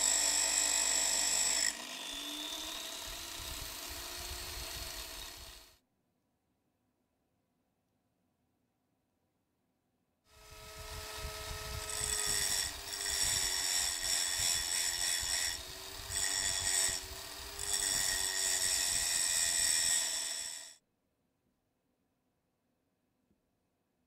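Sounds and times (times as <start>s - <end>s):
angle grinder whining: 0.0s - 5.7s, 10.4s - 20.7s
grinder rasping on metal nut: 0.0s - 5.7s, 10.5s - 20.8s.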